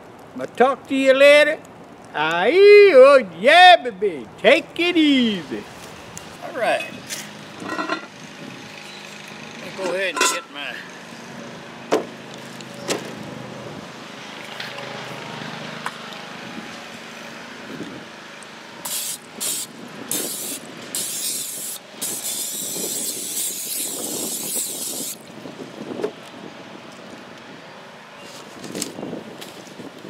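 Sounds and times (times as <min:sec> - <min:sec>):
aerosol spray hissing: 0:18.8 - 0:25.2.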